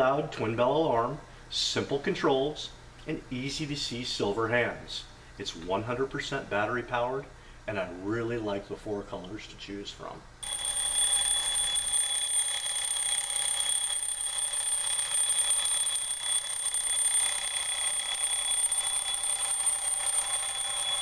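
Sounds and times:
alarm clock bells ringing: 0:10.4 - 0:21.0.

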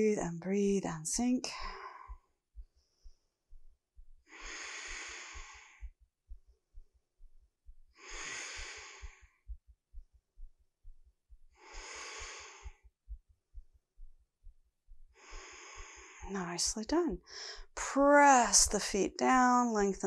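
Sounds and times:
woman breathing slowly: 0:01.5 - 0:06.0, 0:07.7 - 0:09.6, 0:11.4 - 0:13.2, 0:14.0 - 0:16.3, 0:17.2 - 0:17.8.

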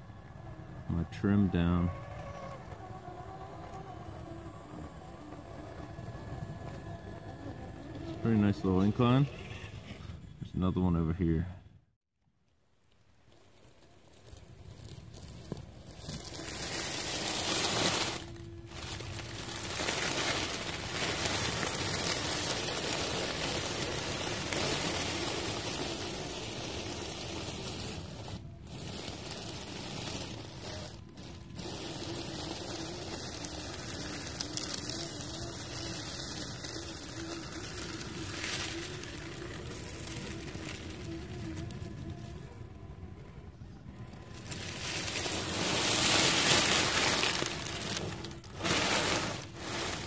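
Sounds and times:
dry leaves crunching under tyres: 0:00.1 - 0:09.2, 0:12.8 - 0:50.0
faint wavering whine: 0:13.8 - 0:50.0.

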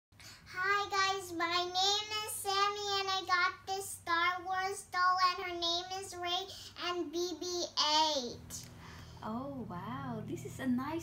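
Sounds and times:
girl singing: 0:00.5 - 0:08.3.

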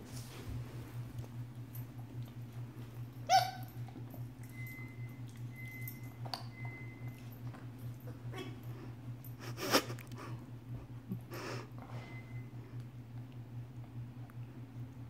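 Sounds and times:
steady low hum: 0:00.0 - 0:15.0
puppy high-pitched yip: 0:03.3 - 0:03.8.

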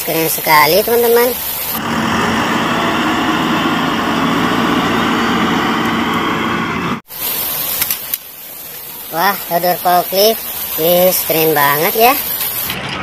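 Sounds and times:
diesel engine running: 0:00.0 - 0:07.1.

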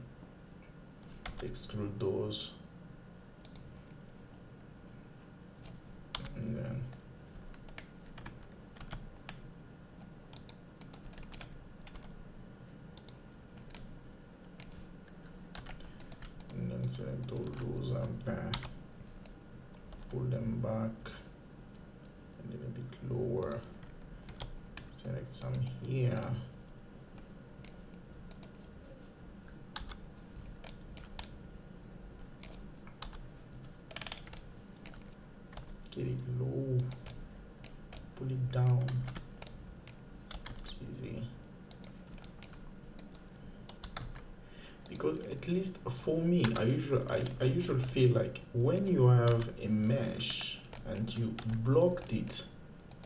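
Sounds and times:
faint low hum: 0:00.0 - 0:53.0
computer keyboard clicks: 0:05.6 - 0:06.4, 0:07.4 - 0:09.4, 0:10.3 - 0:12.1, 0:15.5 - 0:20.2, 0:23.4 - 0:26.3, 0:27.6 - 0:28.7, 0:29.8 - 0:30.0, 0:30.6 - 0:31.4, 0:32.4 - 0:33.2, 0:33.9 - 0:35.9, 0:36.8 - 0:40.8, 0:41.7 - 0:44.2, 0:48.7 - 0:49.5.

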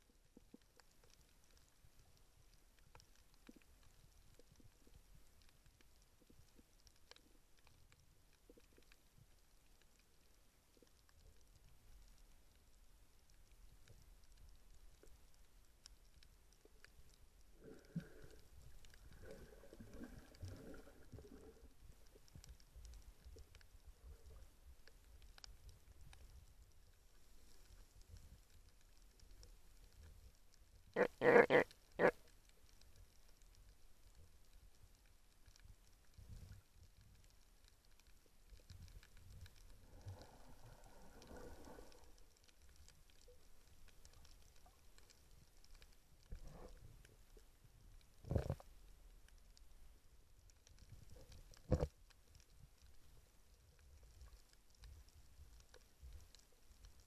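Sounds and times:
small clicks and crackles: 0:00.0 - 0:57.0
low underwater rumble: 0:11.2 - 0:32.1, 0:33.4 - 0:54.2.

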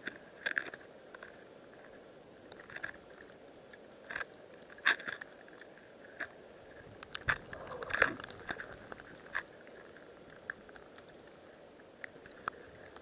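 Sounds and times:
faint steady hiss: 0:00.0 - 0:13.0
underwater clicks and crackles: 0:00.0 - 0:13.0.

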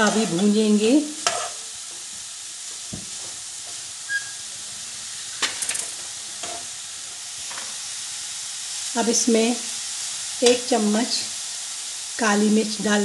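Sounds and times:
vegetables sizzling in a pan: 0:00.0 - 0:13.0
spatula scraping a pan: 0:01.2 - 0:01.7.

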